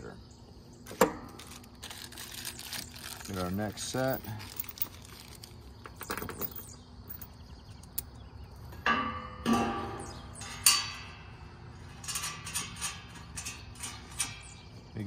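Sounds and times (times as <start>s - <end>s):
ringing metal clanks: 8.8s - 14.7s.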